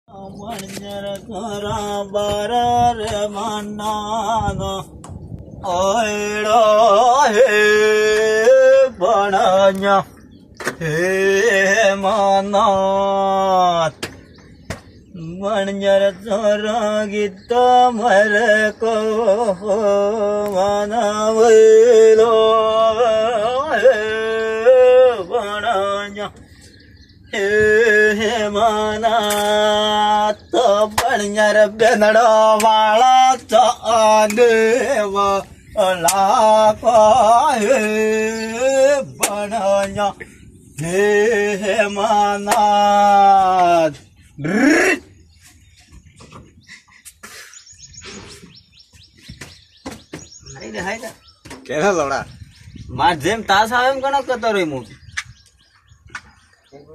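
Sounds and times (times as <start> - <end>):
scattered clicks and knocks: 14.0 - 14.9.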